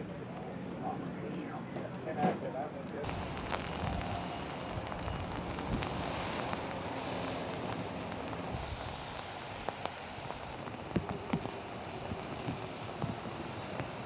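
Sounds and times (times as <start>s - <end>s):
wind on microphone: 3.0s - 14.0s.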